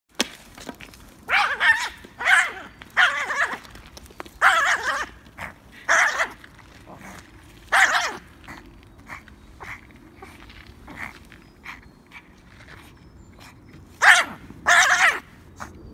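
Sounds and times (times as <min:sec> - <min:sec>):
small dog high-pitched barks: 0:07.7 - 0:08.2, 0:14.0 - 0:15.2.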